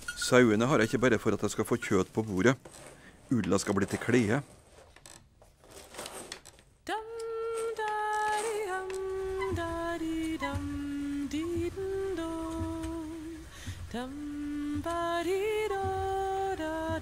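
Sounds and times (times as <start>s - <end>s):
woman singing wordless melody: 6.8s - 17.0s.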